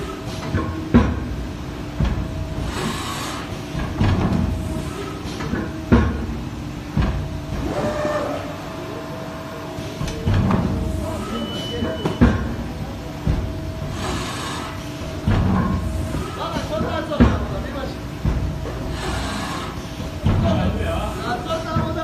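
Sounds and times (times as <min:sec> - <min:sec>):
machine hum: 0:00.0 - 0:22.0
mechanical clunks: 0:10.0 - 0:13.9.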